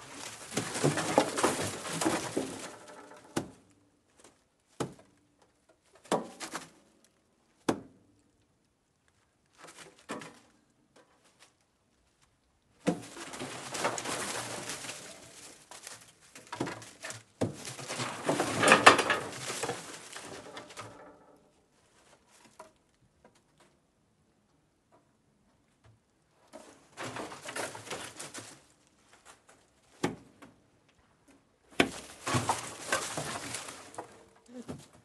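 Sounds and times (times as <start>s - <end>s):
rough noisy rabbit sounds: 0.0s - 35.0s.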